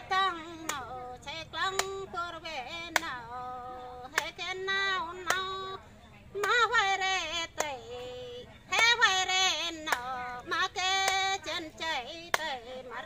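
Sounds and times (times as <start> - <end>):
woman singing unaccompanied: 0.0 - 13.0
hand clapping: 0.3 - 1.0, 1.6 - 2.1, 2.8 - 3.3, 4.0 - 4.4, 5.1 - 5.6, 6.4 - 6.8, 9.7 - 11.4, 12.2 - 12.6.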